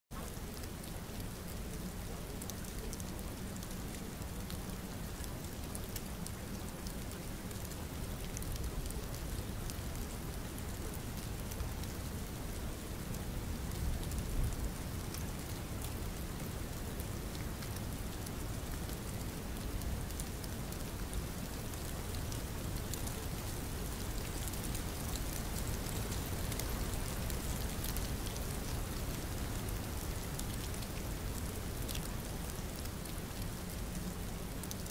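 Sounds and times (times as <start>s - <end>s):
steady rain: 0.1s - 34.9s
raindrop ticks: 13.1s - 34.9s.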